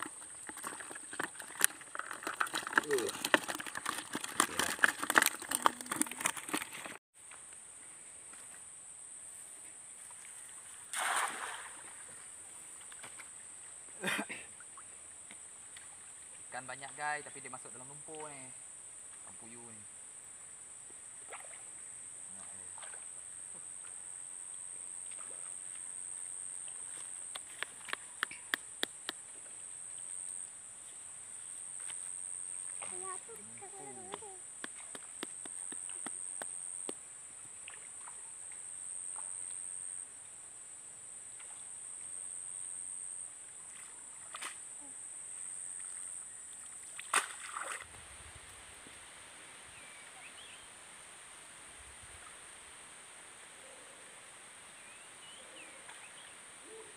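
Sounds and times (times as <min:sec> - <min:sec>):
insects droning: 0:00.0 - 0:56.9
net splashing in water: 0:10.8 - 0:12.2, 0:46.8 - 0:48.0
faint bird chirps: 0:54.8 - 0:56.9.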